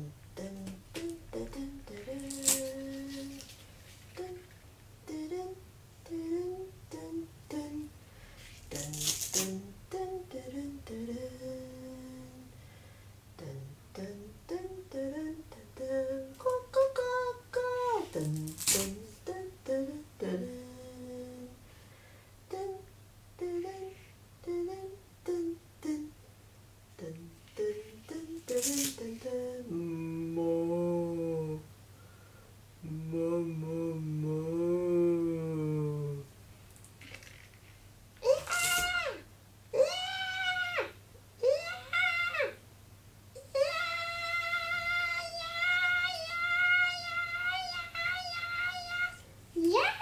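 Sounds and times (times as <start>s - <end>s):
woman humming: 0.0s - 3.5s, 13.4s - 21.6s, 22.5s - 26.1s, 27.0s - 31.7s, 32.8s - 36.3s, 38.2s - 42.5s, 43.4s - 50.0s.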